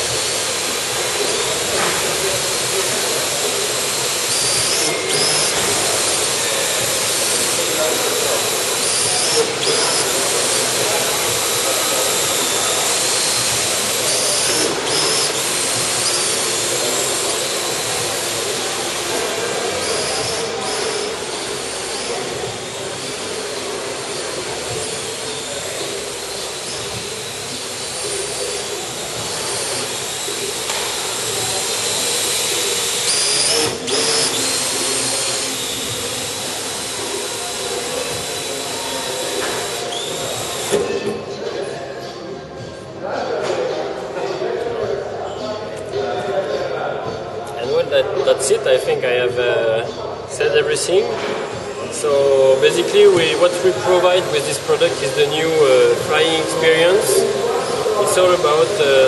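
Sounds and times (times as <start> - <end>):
drone propellers whirring: 0.0 - 41.1.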